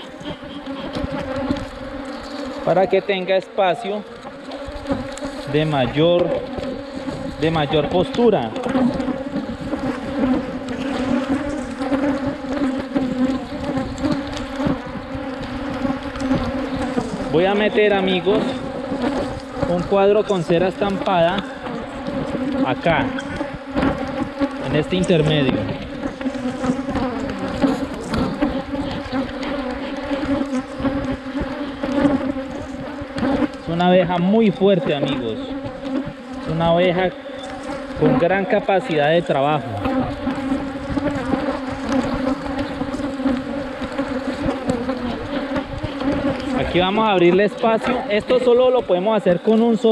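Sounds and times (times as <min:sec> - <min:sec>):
honeybees buzzing: 0:00.0 - 0:49.9.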